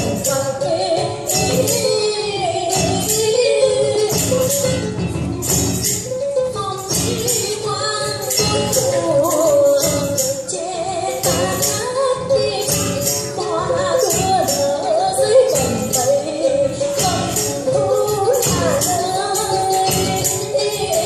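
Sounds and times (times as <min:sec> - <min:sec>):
percussion strikes: 0:00.0 - 0:21.0.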